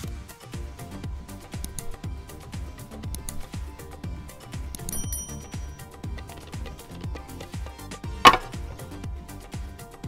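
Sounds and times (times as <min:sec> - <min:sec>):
background music with steady beat: 0:00.0 - 0:10.0
short sharp knock: 0:08.3 - 0:08.7.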